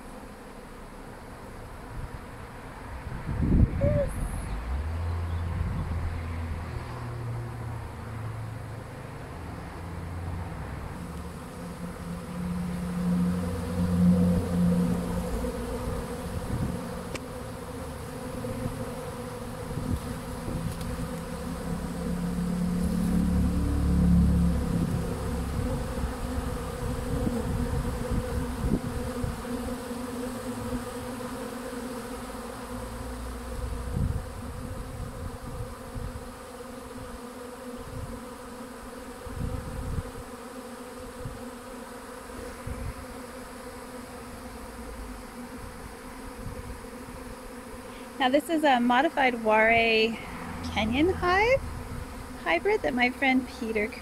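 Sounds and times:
bee swarm buzzing: 0.0 - 54.0
low rumbles: 21.5 - 26.4.

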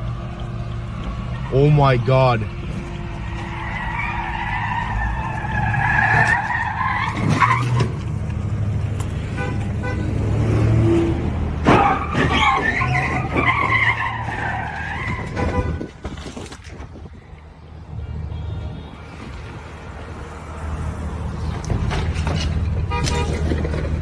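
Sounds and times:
car tyres squealing: 2.7 - 8.2, 11.6 - 16.6.

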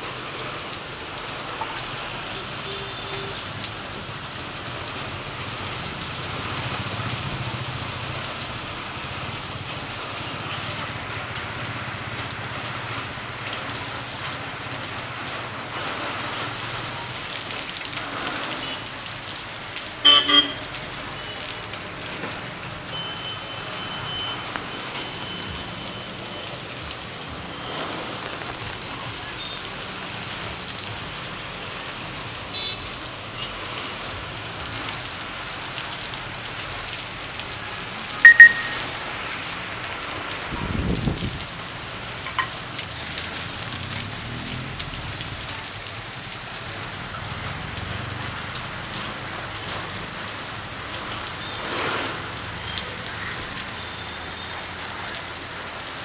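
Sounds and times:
heavy rain on pavement: 0.0 - 56.0
high-pitched chirps: 38.2 - 38.9.

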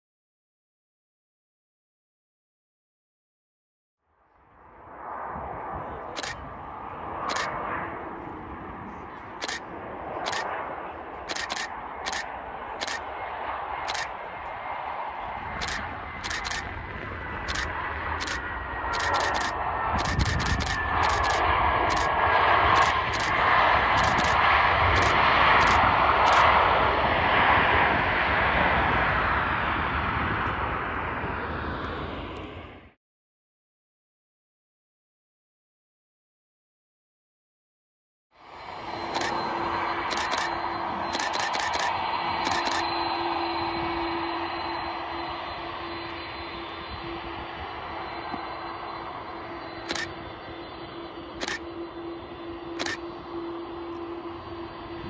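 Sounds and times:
jet engines roaring: 4.4 - 33.0, 38.4 - 55.0
camera shutter firing: 6.2 - 6.4, 10.3 - 10.5, 11.3 - 12.2, 12.8 - 13.0, 13.9 - 14.1, 15.6 - 16.7, 17.5 - 22.1, 22.8 - 23.4, 24.0 - 24.4, 40.0 - 40.5, 41.1 - 42.8, 49.9 - 50.1, 51.4 - 51.6, 52.8 - 53.0.

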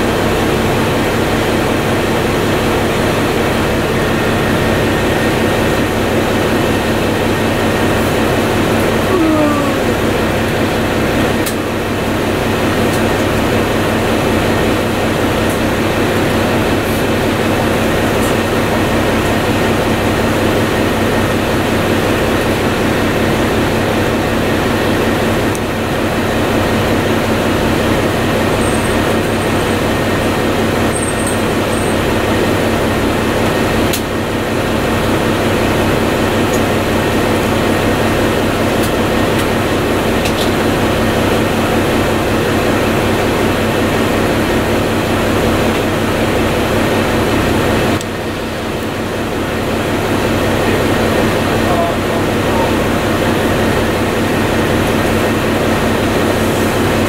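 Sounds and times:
bus engine hum: 0.0 - 57.0.

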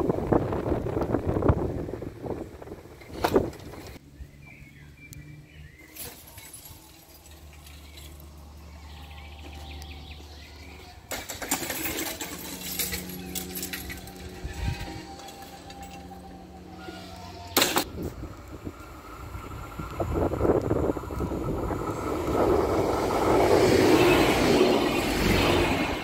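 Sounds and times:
wind buffeting microphone: 0.0 - 4.0, 13.9 - 15.2, 17.8 - 26.0
bird chirping: 4.0 - 11.1.

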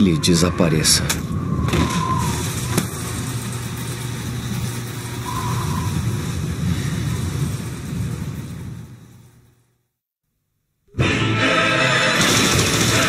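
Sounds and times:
faint rising and falling tone: 0.0 - 9.7
city traffic rumble: 0.0 - 9.8.

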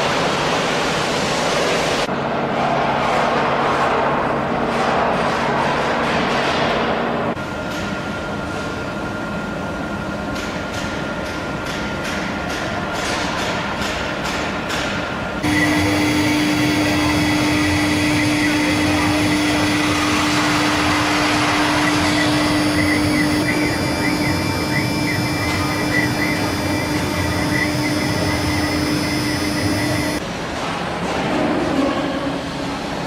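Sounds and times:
router spindle whining: 15.4 - 30.2.

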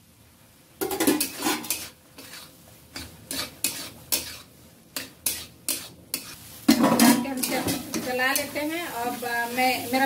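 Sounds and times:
metal spatula scraping a pan: 0.8 - 9.7.

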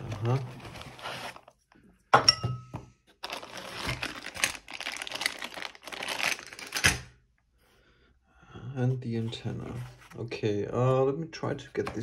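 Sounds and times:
plastic bag crinkling: 3.2 - 7.0.

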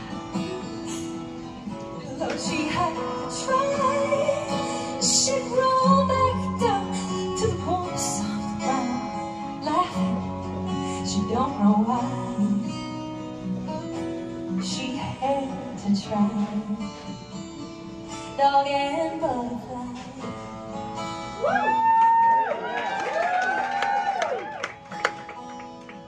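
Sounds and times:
strummed acoustic guitar: 0.0 - 21.4, 24.7 - 26.0
woman singing: 2.0 - 13.2, 14.5 - 17.4, 18.3 - 20.6.

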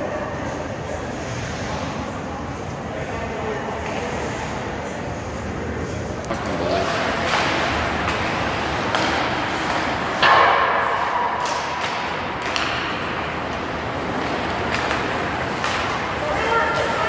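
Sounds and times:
hockey sticks and puck clacking: 6.3 - 17.0.

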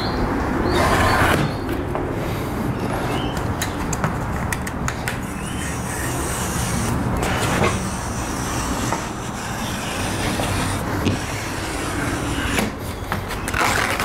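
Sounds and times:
utility knife cutting foam: 4.6 - 14.0.

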